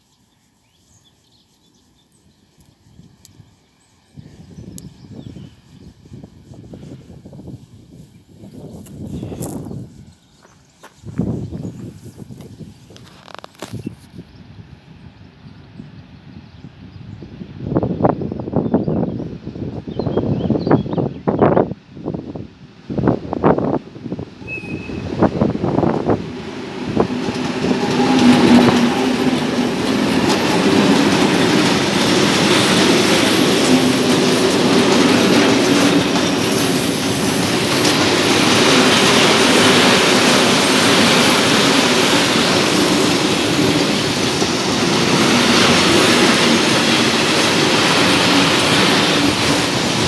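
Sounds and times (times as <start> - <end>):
diesel locomotives passing: 1.9 - 50.0
train wagons rumbling on rails: 23.0 - 50.0.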